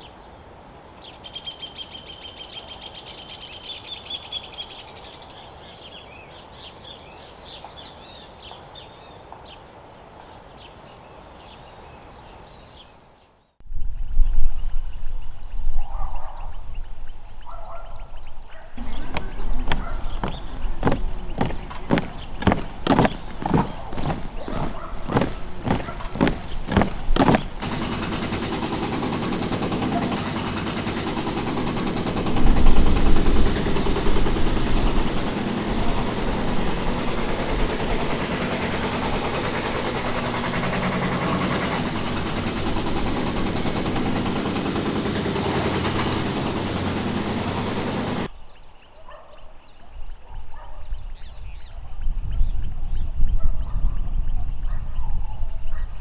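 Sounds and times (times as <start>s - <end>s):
boots on wooden planks: 18.8s - 27.6s
wind rushing over microphone: 18.8s - 27.6s, 50.9s - 56.0s.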